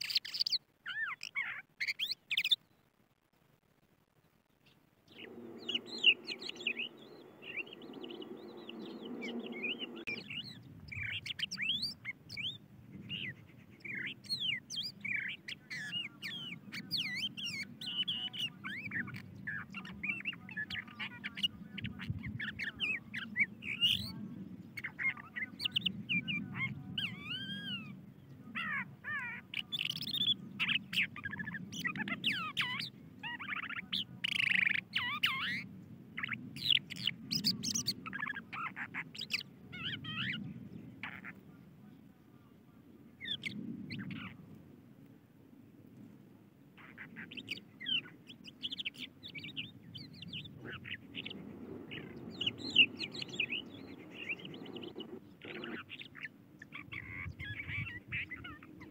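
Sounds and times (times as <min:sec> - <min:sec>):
lark song: 0:04.6 - 0:44.6, 0:46.8 - 0:58.9
low steady hum: 0:04.9 - 0:13.1.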